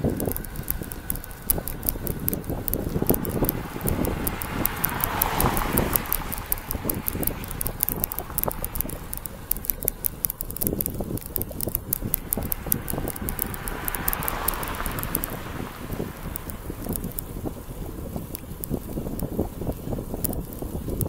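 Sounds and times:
low rumble: 0.0s - 18.7s
bicycle ticking: 0.0s - 21.0s
rushing swell: 1.2s - 10.4s.

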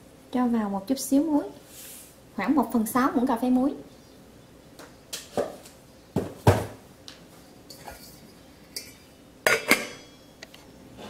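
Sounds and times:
kitchen items knocking and clinking: 6.2s - 6.8s, 7.7s - 10.2s.

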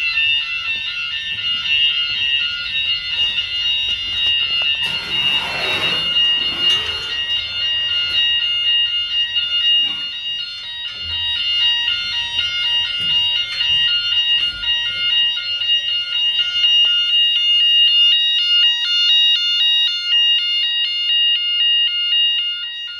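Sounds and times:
alarm beeps: 0.0s - 22.9s
electronic alarm high tone: 0.0s - 22.9s.

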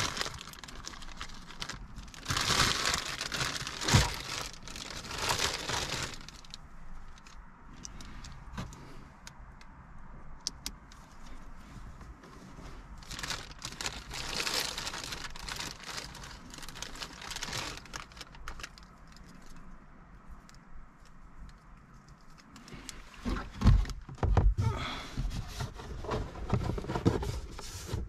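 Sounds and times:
plastic bag crinkling: 0.0s - 8.1s, 13.0s - 19.6s.

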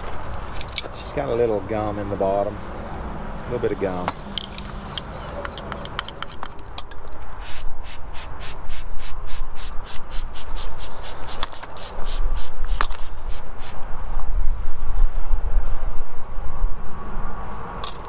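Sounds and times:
parts being handled clicks: 4.1s - 7.6s, 11.2s - 11.9s
brisk scrubbing strokes: 7.4s - 13.8s.

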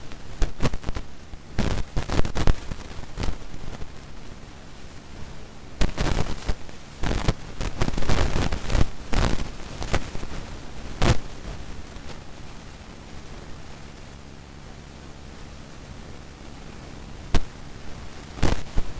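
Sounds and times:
rustling and crackling: 0.0s - 14.2s, 16.5s - 18.9s
steady hiss: 0.0s - 18.9s.

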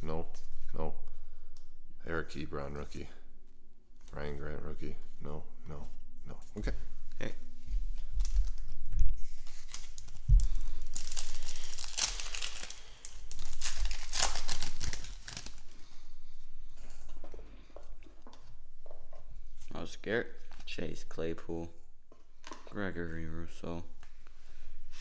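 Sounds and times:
wrapper tearing and crinkling: 9.3s - 15.9s.

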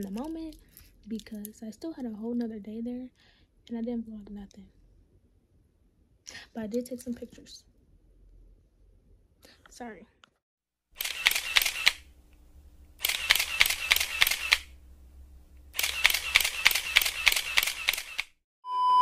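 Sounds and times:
camera shutter clicks: 11.0s - 12.1s, 13.0s - 14.7s, 15.8s - 18.4s
steady beep: 18.6s - 19.0s.

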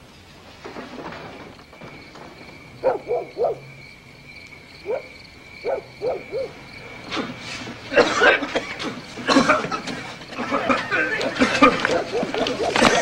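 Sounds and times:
dog barking: 2.8s - 3.7s, 4.8s - 6.6s, 11.8s - 13.0s.

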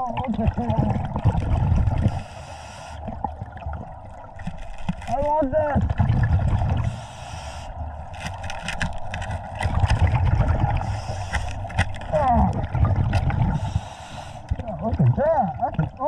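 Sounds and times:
rumble of exhaled bubbles: 0.0s - 16.0s
scuba regulator breaths: 1.9s - 3.2s, 6.6s - 12.3s, 13.0s - 14.6s
clicks and knocks on rocks: 4.4s - 5.4s, 8.1s - 10.2s, 11.2s - 12.3s.

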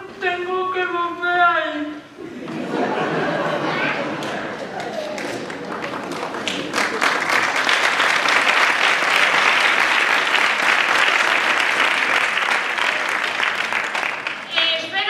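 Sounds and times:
audience applauding: 3.3s - 14.8s.

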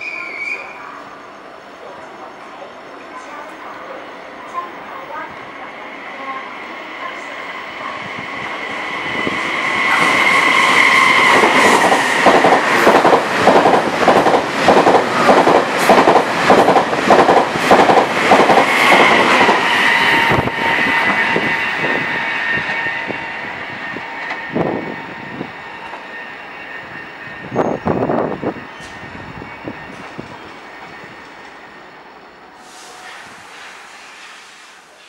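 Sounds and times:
train high whine: 0.0s - 35.0s.

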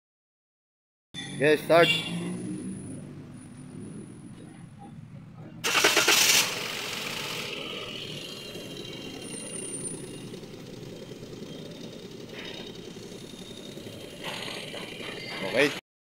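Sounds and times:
car engine idling: 3.0s - 15.7s.

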